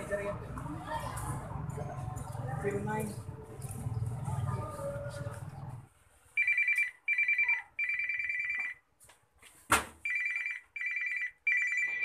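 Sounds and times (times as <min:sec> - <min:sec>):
mobile phone ringtone trilling: 0:06.4 - 0:08.8, 0:10.0 - 0:12.0.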